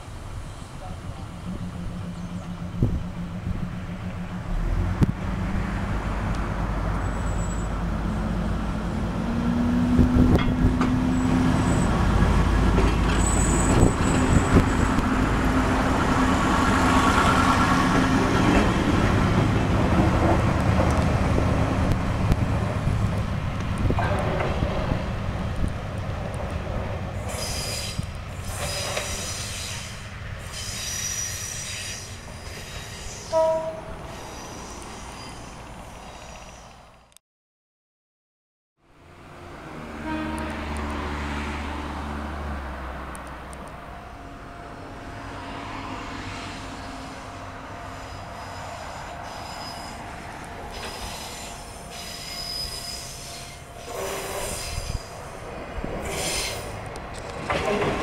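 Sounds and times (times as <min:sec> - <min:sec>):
diesel railcar engine: 0:00.0 - 0:37.2, 0:38.8 - 0:58.0
high wheel squeal: 0:13.1 - 0:15.0, 0:27.2 - 0:36.8, 0:46.5 - 0:55.4, 0:56.0 - 0:56.8
train wheels clicking over rail joints: 0:27.2 - 0:33.2, 0:50.2 - 0:58.0.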